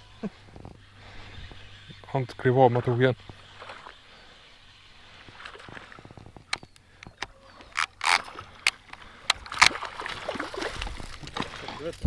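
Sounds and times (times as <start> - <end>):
fish splashing at water surface: 8.2 - 11.7.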